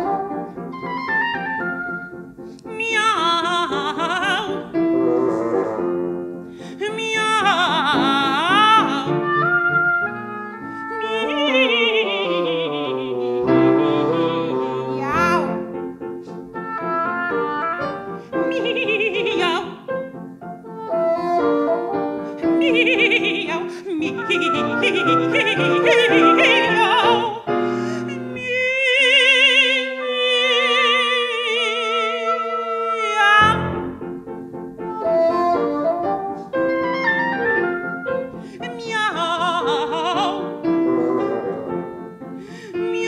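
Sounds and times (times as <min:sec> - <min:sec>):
oboe: 0:00.0 - 0:34.0, 0:34.8 - 0:43.0
piano: 0:00.0 - 0:43.0
woman singing with vibrato: 0:02.7 - 0:05.6, 0:06.6 - 0:09.6, 0:10.8 - 0:13.3, 0:18.3 - 0:20.0, 0:22.4 - 0:33.7, 0:38.5 - 0:41.8, 0:42.7 - 0:43.0
bassoon: 0:03.7 - 0:06.4, 0:07.5 - 0:19.8, 0:20.6 - 0:28.3, 0:34.8 - 0:42.3.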